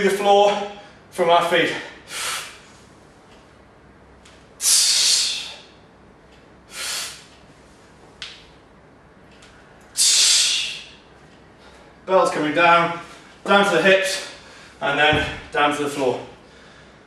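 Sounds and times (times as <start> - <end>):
man breathing forcefully: 1.9 - 2.7, 4.6 - 5.8, 6.7 - 7.3, 10.0 - 11.0, 16.4 - 17.0.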